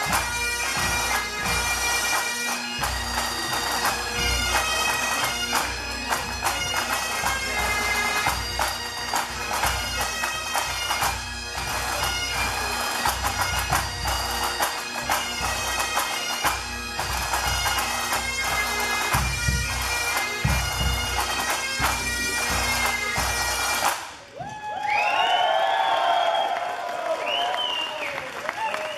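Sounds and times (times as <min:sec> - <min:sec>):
bagpipes playing melody: 0:00.0 - 0:24.2
snare and bass drums beating: 0:18.6 - 0:23.3.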